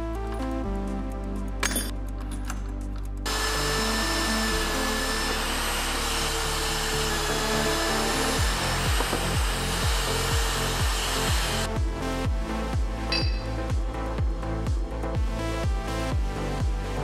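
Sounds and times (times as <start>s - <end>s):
electronic music with bass beat: 0.0s - 17.0s
drill press grinding through steel: 3.3s - 11.6s.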